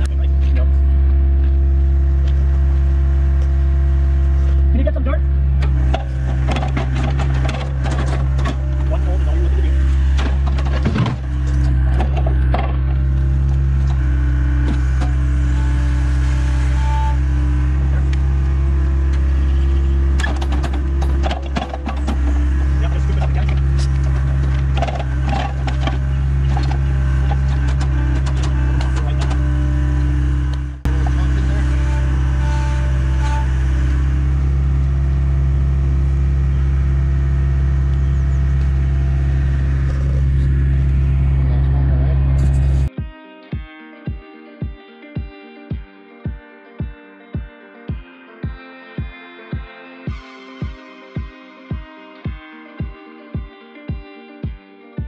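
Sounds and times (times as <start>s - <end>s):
construction equipment engine running: 0.0s - 42.9s.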